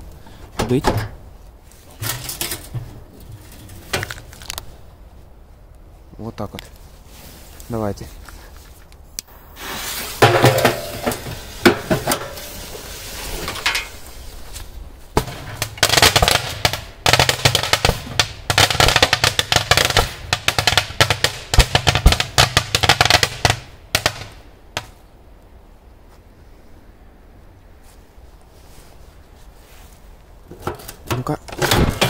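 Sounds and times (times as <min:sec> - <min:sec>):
firework bangs and crackling: 0:09.3 - 0:14.1, 0:15.1 - 0:24.9.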